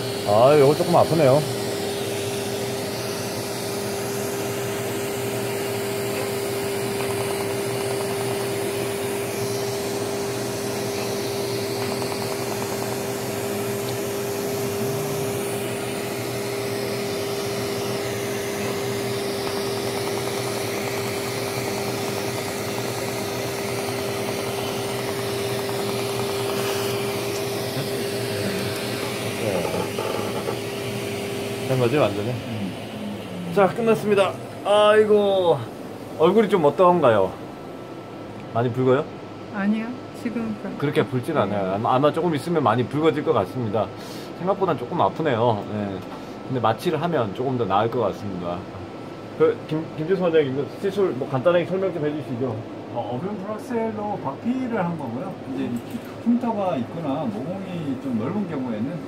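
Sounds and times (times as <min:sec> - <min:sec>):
laser machine humming: 0:00.0 - 0:59.0.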